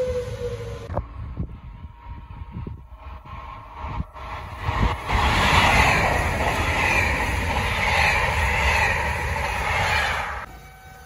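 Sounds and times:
high-speed train passing: 0.0s - 11.0s.

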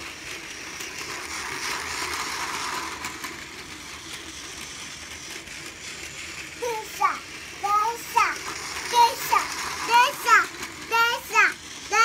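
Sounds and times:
toy train motor whirring: 0.0s - 12.0s
wheels rattling: 6.0s - 12.0s.

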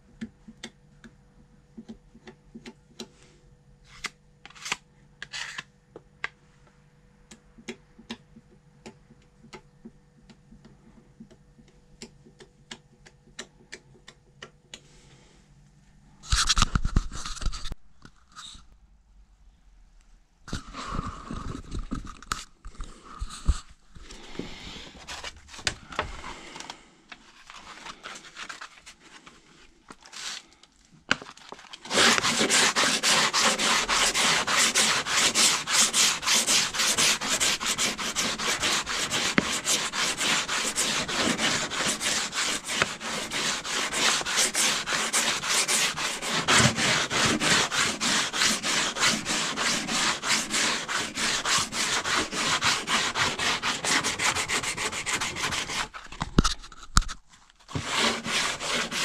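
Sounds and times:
hand sanding car fender: 31.8s - 56.0s, 57.7s - 59.0s.

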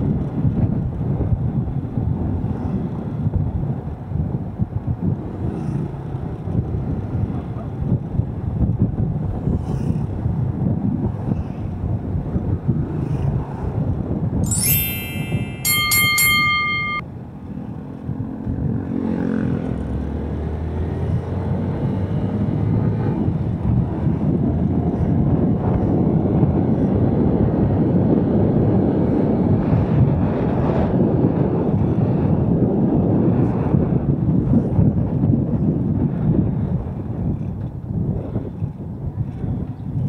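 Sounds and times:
road noise: 0.0s - 13.8s, 14.5s - 32.2s
wind buffeting microphone: 0.0s - 14.6s, 18.1s - 40.0s
bright chime: 14.5s - 17.0s.

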